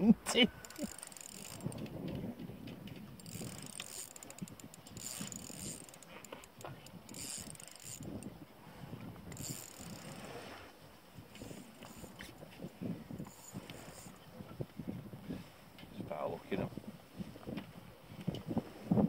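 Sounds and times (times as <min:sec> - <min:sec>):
fishing reel whirring and clicking: 0:00.4 - 0:10.4, 0:11.3 - 0:14.3.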